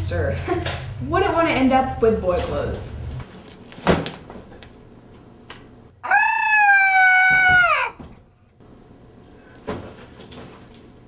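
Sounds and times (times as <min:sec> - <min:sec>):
person screaming: 0:06.0 - 0:08.0.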